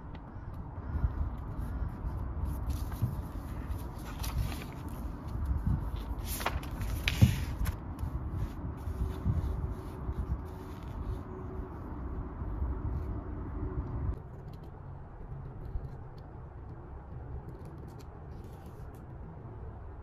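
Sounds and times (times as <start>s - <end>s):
paper rustling: 1.6s - 11.4s
notebook pages and cover moving: 2.4s - 12.2s.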